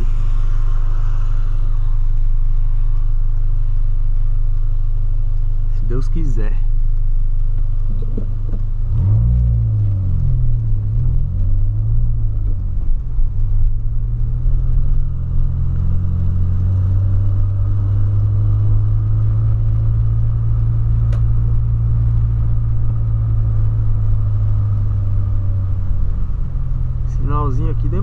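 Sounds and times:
car engine and road drone: 0:00.0 - 0:28.0.

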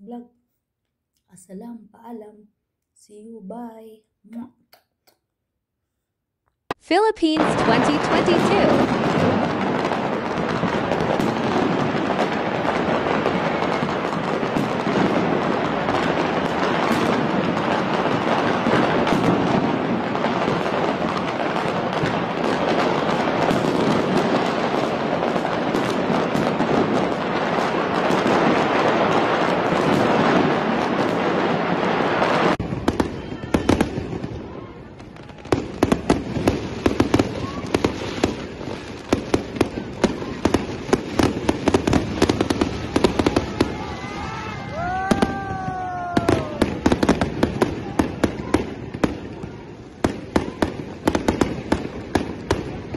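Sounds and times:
fireworks crackling: 0:06.7 - 0:52.9
sharp firecracker cracks: 0:07.5 - 0:34.3, 0:35.3 - 0:49.3.

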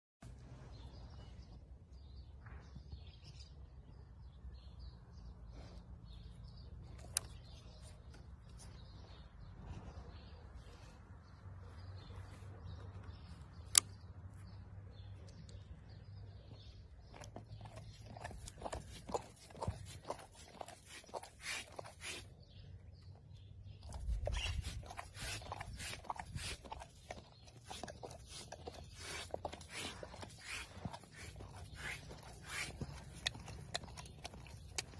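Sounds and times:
small birds chirping: 0:00.2 - 0:34.9
animal lapping water: 0:17.0 - 0:22.4, 0:23.9 - 0:34.9.

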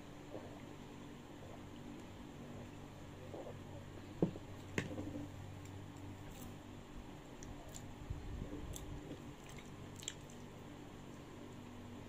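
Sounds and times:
low steady hum: 0:00.0 - 0:12.0
soft mouth noises: 0:01.4 - 0:04.0.

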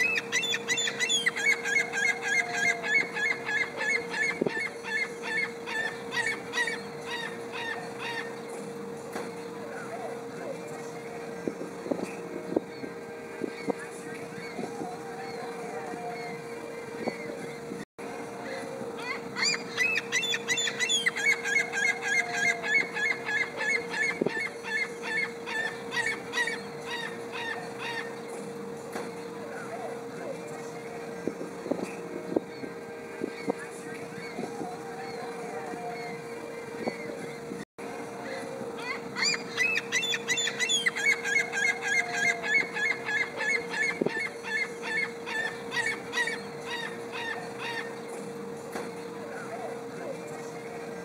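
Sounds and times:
gull yelping call: 0:00.0 - 0:08.4, 0:19.0 - 0:28.2, 0:38.8 - 0:48.0
faint steady hum: 0:00.0 - 0:51.0.

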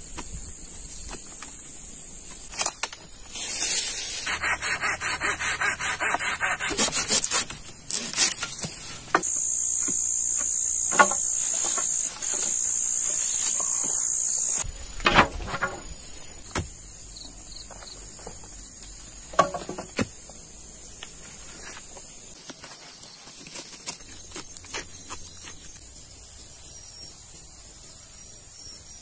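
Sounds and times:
faint high insect hum: 0:00.0 - 0:06.6, 0:07.4 - 0:29.0
pruning saw cutting branch: 0:02.5 - 0:14.7
high-pitched insect drone: 0:09.1 - 0:14.7.

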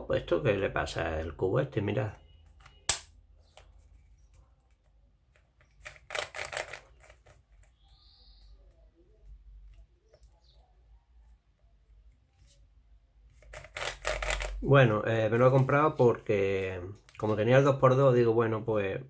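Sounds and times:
puzzle cube layers clicking: 0:05.3 - 0:07.7, 0:13.4 - 0:14.6.

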